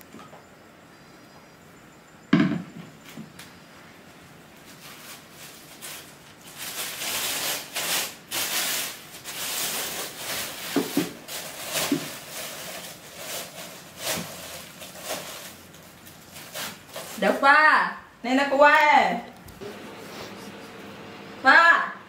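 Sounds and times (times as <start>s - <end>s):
plastic bag rustling: 4.5s - 17.4s.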